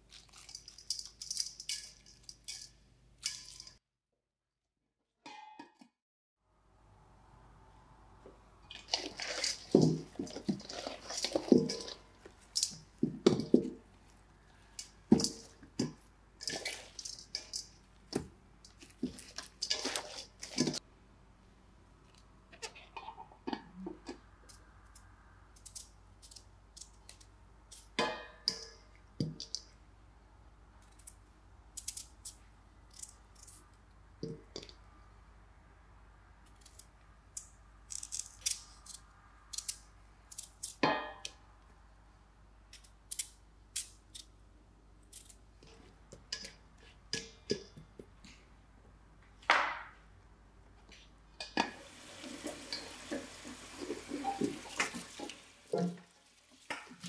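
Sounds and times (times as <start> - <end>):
utensils and dishes clicking: 0.2 - 3.8.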